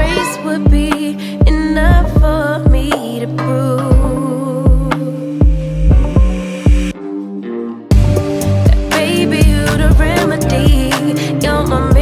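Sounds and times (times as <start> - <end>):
drum beat and bass: 0.0 - 3.2, 3.8 - 7.0, 7.9 - 12.0
person singing: 0.0 - 5.7, 8.4 - 12.0.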